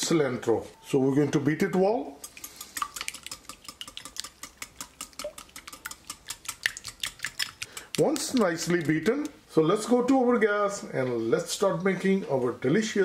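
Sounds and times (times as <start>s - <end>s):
whisk clicking against glass bowl: 2.2s - 9.4s.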